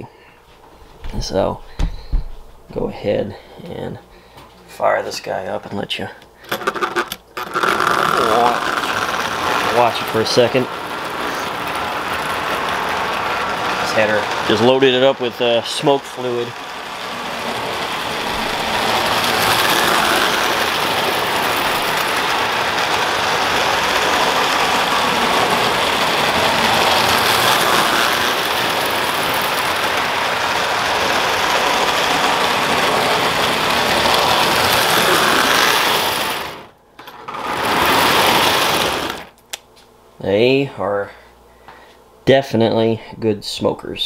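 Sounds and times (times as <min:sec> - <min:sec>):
toy train rattling and whirring: 0:06.4 - 0:39.6.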